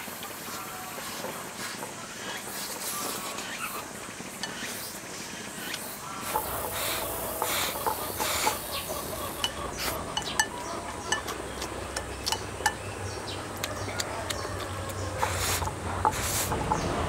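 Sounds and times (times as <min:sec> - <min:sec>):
chopsticks clicking against bowl: 0:09.4 - 0:12.9, 0:13.6 - 0:16.9
person chewing: 0:09.4 - 0:16.7.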